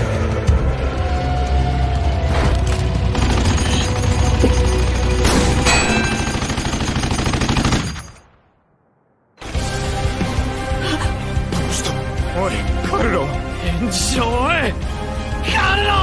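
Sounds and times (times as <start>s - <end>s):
background music: 0.0s - 7.7s, 9.4s - 16.0s
machine-gun fire: 3.1s - 8.3s.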